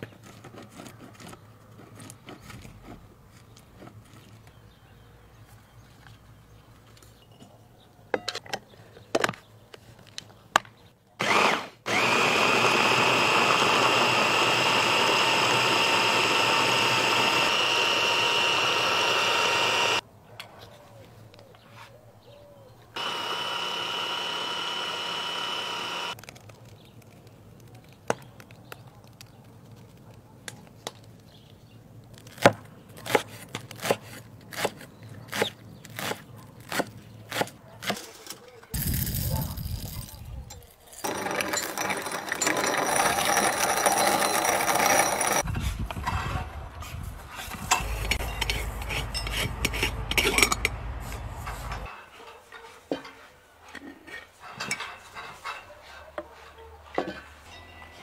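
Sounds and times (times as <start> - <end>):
hand blender whining: 11.2 - 20.0, 23.0 - 26.2, 41.0 - 45.5.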